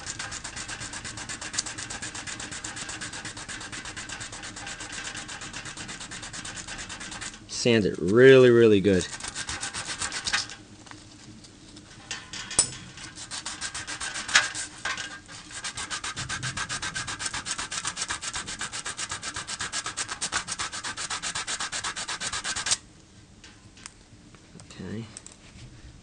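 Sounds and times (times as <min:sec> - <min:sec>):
sandpaper rubbing on metal: 0:00.0 - 0:07.4, 0:08.3 - 0:10.6, 0:13.0 - 0:22.8.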